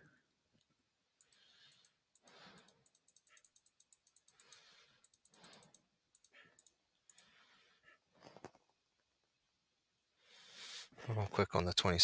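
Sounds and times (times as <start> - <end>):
computer mouse clicking rapidly: 1.2 - 7.4.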